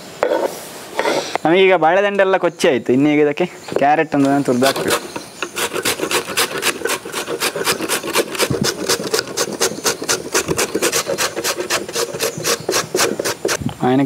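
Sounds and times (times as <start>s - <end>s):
carrot grated on metal grater: 4.6s - 13.6s.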